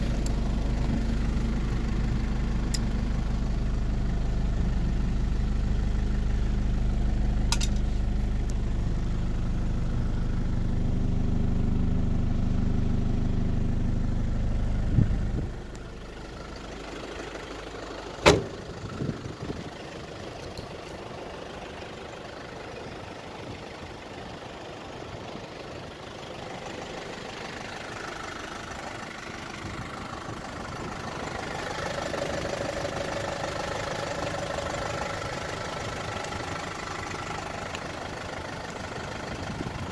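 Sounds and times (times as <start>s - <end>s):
hum: 0.0s - 17.3s
diesel engine idling: 0.0s - 39.9s
car door shutting: 18.2s - 18.7s.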